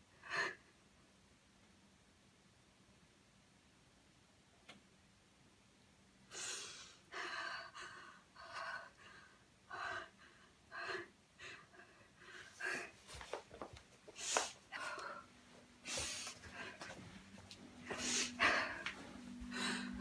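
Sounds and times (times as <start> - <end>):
woman gasping breaths: 6.3 - 13.2, 14.1 - 17.1, 17.8 - 20.0.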